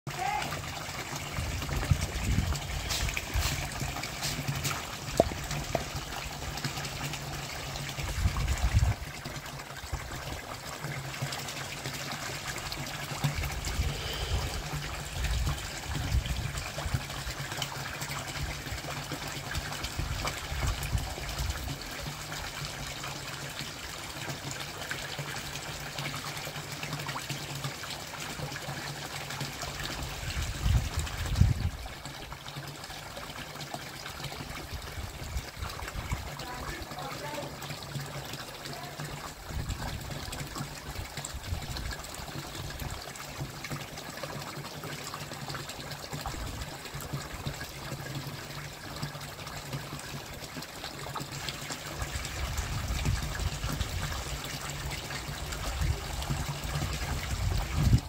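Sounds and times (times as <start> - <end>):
water trickling into pond: 0.1 - 58.0
wind buffeting microphone: 1.4 - 3.5, 8.1 - 9.1, 30.2 - 31.9, 52.2 - 54.2, 56.8 - 58.0.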